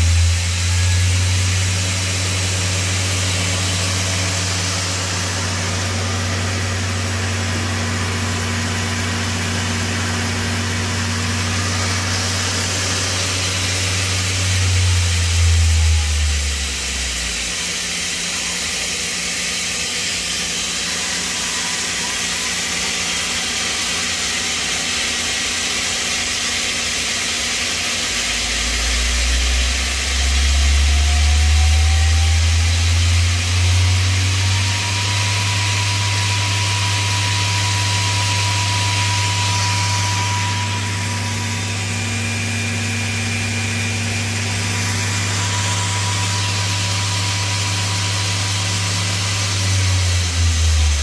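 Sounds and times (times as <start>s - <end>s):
lathe hissing: 0.0s - 51.0s
lathe spindle hum: 0.0s - 51.0s.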